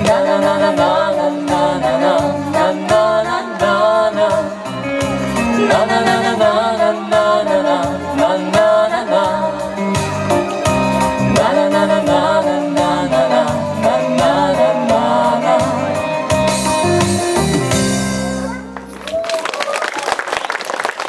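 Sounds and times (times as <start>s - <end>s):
man and woman singing duet: 0.0s - 16.6s
pop backing track with bass beat: 0.0s - 19.2s.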